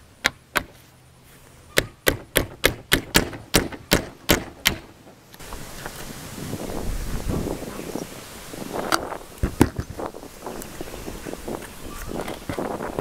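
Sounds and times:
hammer striking nails: 1.8 - 5.0
wind noise on microphone: 5.4 - 13.0.

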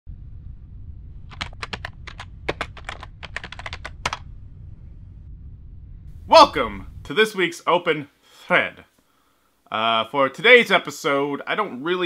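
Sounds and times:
steady low hum: 0.1 - 7.5
computer keyboard typing: 1.3 - 4.2.

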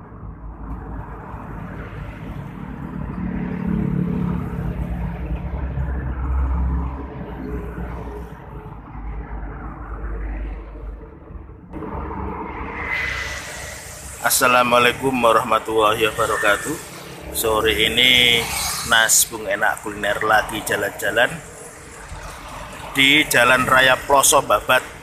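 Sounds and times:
road traffic passing: 0.0 - 25.0.

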